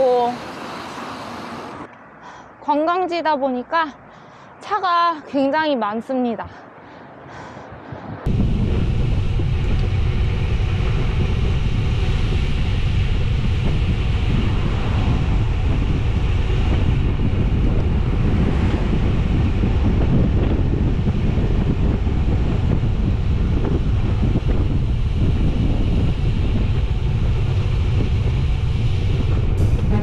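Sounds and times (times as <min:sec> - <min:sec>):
road traffic rumble: 0:00.0 - 0:30.0
wind rushing over microphone: 0:06.6 - 0:30.0.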